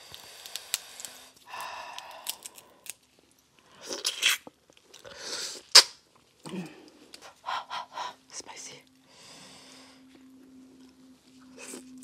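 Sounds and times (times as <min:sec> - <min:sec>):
crawfish shells clicking: 0:00.1 - 0:03.0.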